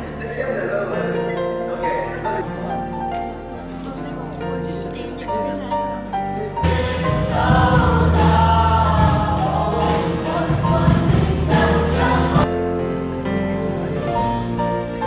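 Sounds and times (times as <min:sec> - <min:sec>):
soft instrumental music: 0:00.0 - 0:15.0
congregation singing with band: 0:06.6 - 0:12.5.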